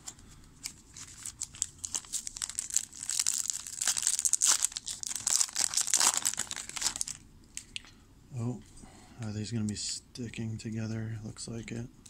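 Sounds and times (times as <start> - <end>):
wrapper crinkling and tearing: 0.6 - 7.7.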